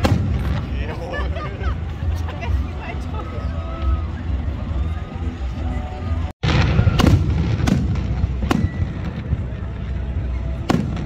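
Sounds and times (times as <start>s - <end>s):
firework bangs: 0.0s - 1.1s, 6.4s - 11.0s.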